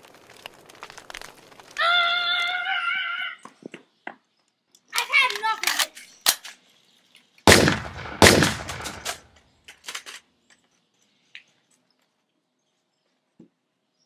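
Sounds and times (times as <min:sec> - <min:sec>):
gunshots: 0:07.5 - 0:09.3.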